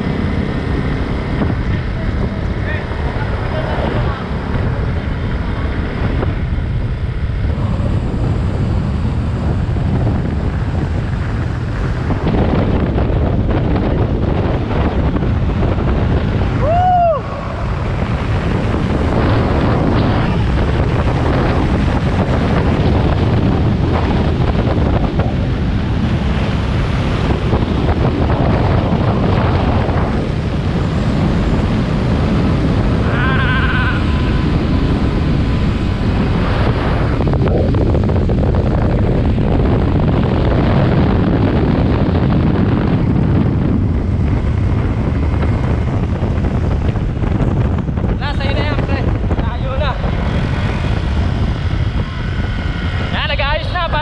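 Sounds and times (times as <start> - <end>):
motorcycle engine running: 0.0 - 16.6, 17.2 - 54.0
road noise: 0.0 - 54.0
wind buffeting microphone: 0.0 - 54.0
rising and falling tone: 16.5 - 23.2.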